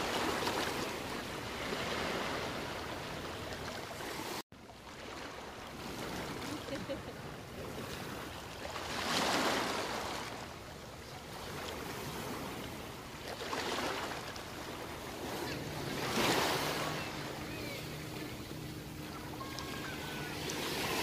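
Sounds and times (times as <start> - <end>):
small waves breaking on beach: 0.0 - 21.0
steady wash of water: 0.0 - 21.0.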